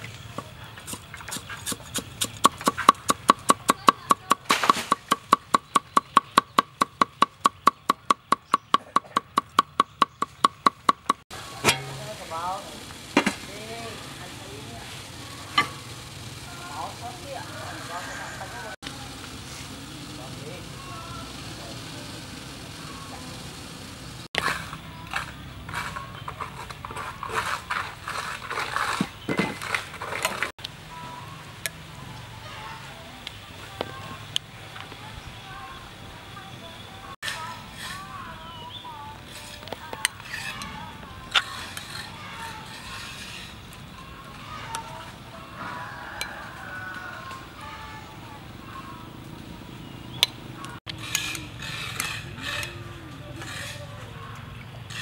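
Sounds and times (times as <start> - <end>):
cleaver scraping board: 0.8 - 6.5, 24.4 - 30.5, 39.2 - 43.7, 50.9 - 54.2
cleaver chopping on wooden board: 0.9 - 11.9
low steady hum: 11.4 - 24.3.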